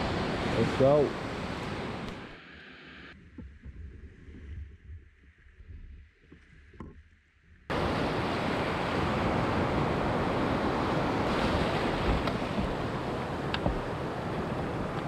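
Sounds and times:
rush of water: 0.0s - 3.0s, 7.7s - 15.0s
wind buffeting the microphone: 7.7s - 15.0s.

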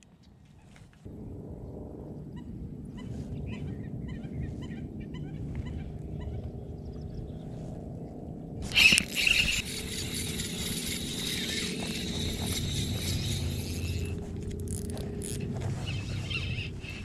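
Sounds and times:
electric boat motor rumbling: 5.4s - 17.0s.

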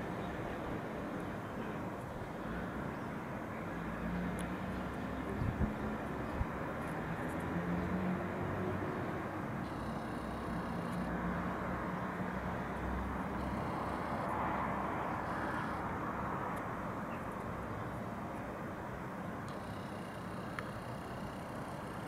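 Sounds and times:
hum of cars: 0.0s - 22.0s
vehicle passing: 3.7s - 17.7s.

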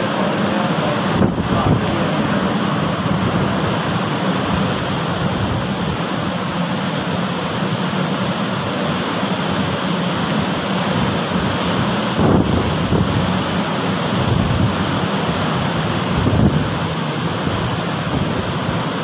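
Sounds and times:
storm wind rushing through trees: 0.0s - 19.0s
wind buffeting microphone: 0.8s - 6.6s, 11.0s - 19.0s.

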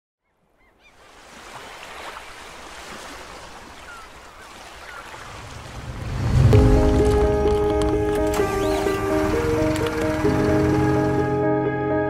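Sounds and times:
outdoor rushing noise: 5.3s - 10.7s
low rumble: 5.4s - 11.3s
music with held notes: 6.4s - 12.0s.

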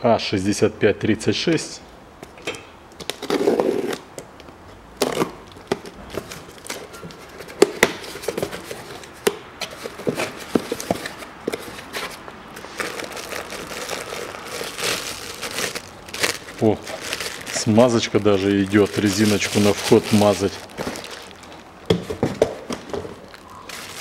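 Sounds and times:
plastic wrap crinkling: 9.8s - 24.0s.

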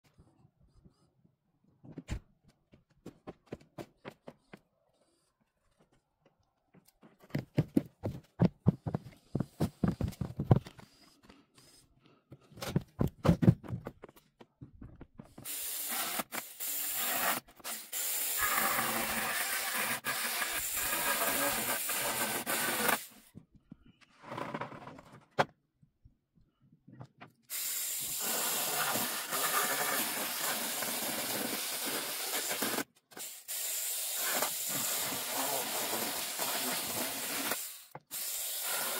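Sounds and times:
quick knocks and clatters: 12.6s - 15.4s.

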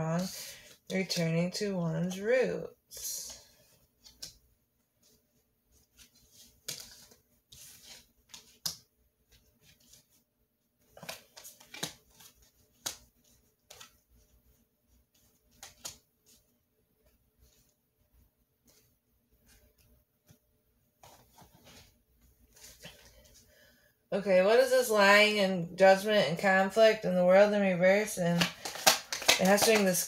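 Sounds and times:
cards rustling: 5.8s - 10.2s, 10.8s - 14.4s, 15.2s - 16.4s, 21.0s - 23.5s, 28.3s - 30.0s.

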